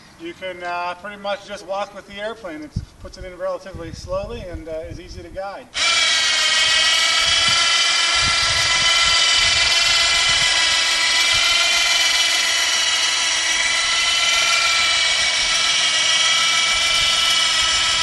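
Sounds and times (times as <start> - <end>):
high electric motor whine: 5.8 - 18.0.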